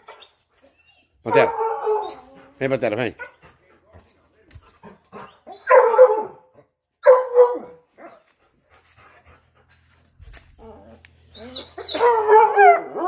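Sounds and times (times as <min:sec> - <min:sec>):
hound dogs barking: 0:01.2 - 0:02.3, 0:05.2 - 0:08.3, 0:11.4 - 0:13.0.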